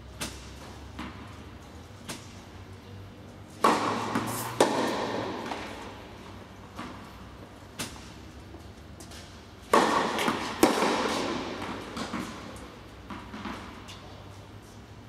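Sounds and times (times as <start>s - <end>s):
tennis ball bouncing: 0.2s - 2.6s, 3.5s - 14.8s
tennis ball hits echoing: 3.6s - 7.0s, 9.7s - 13.8s.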